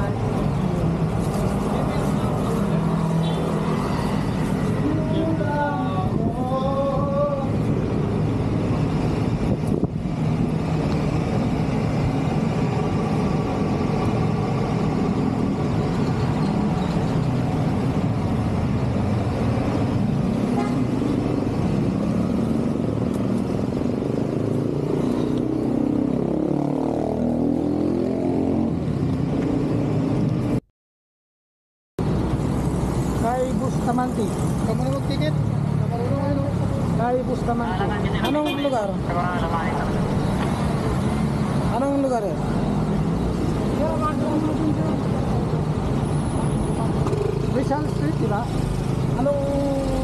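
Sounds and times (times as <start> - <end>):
wind noise: 7.5 - 15.2.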